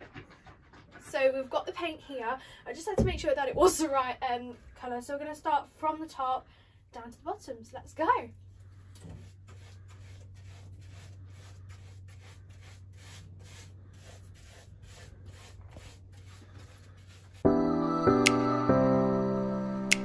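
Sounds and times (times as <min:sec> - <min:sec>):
paintbrush stroking on wood: 0:08.7 - 0:17.4
background music: 0:17.4 - 0:20.0.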